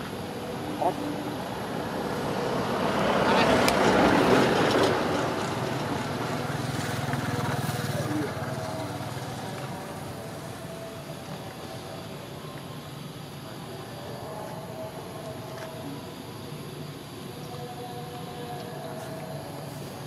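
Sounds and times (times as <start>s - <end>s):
vehicle passing by: 0.8s - 10.4s.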